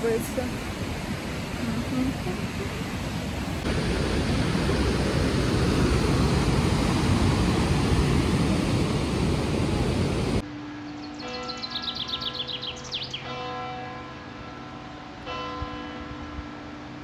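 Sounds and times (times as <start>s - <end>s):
mountain torrent rushing: 0.0s - 10.4s
birds chirping: 10.8s - 13.4s
church bells ringing: 11.2s - 12.5s, 13.2s - 16.9s.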